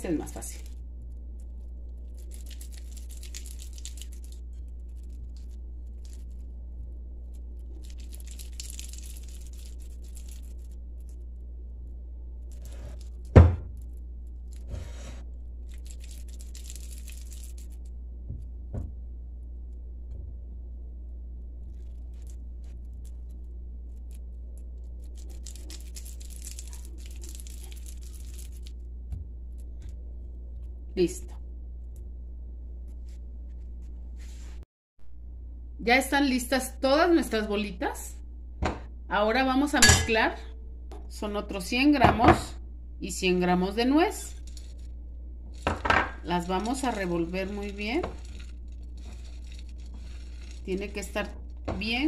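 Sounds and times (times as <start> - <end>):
hands squishing soft mixture: 0.0 - 18.0, 21.4 - 30.9, 43.7 - 52.0
steady low hum: 0.0 - 52.0
hands rolling in glass bowl: 45.5 - 52.0.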